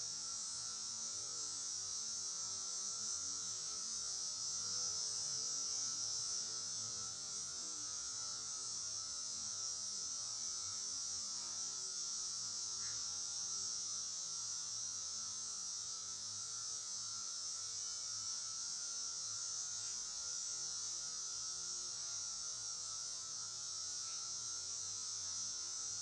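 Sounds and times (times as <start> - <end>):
high-pitched hiss: 0.0 - 26.0.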